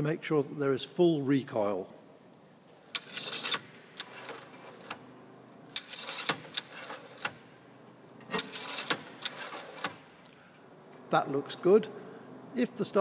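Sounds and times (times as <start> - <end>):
starter mechanism metallic clicks: 2.8 - 5.0, 5.7 - 7.5, 8.2 - 10.2.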